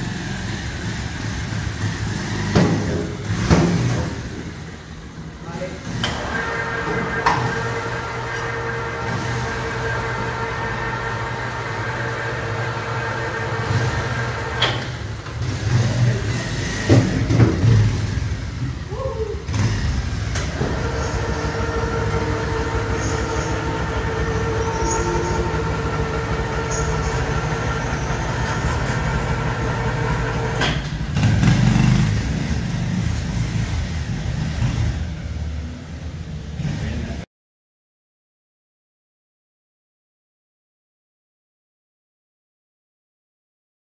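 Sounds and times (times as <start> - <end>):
motorcycle engine running: 0.0 - 5.4, 7.5 - 37.2
electric winch whining: 5.7 - 32.2.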